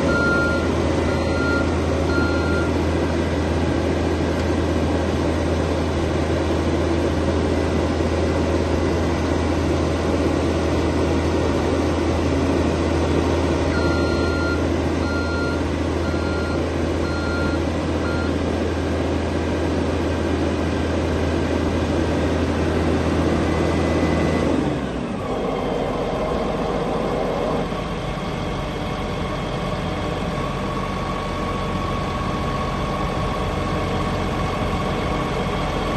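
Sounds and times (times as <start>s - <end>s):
diesel engine running: 0.0s - 35.9s
short warning beeps: 0.1s - 2.8s, 13.7s - 18.3s.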